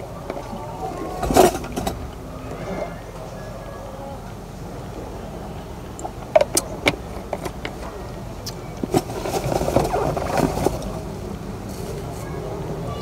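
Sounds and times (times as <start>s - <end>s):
crinkling plastic rustle: 8.9s - 12.4s.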